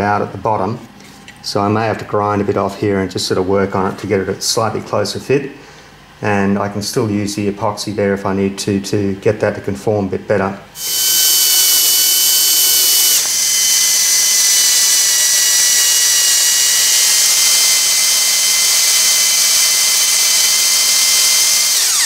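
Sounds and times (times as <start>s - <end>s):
cordless drill boring into metal: 10.8s - 22.0s.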